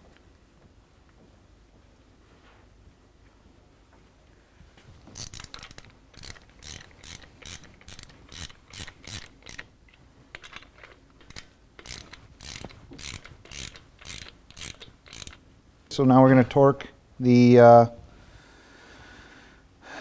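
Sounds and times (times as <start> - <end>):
hand ratchet clicking: 5.1 - 15.4.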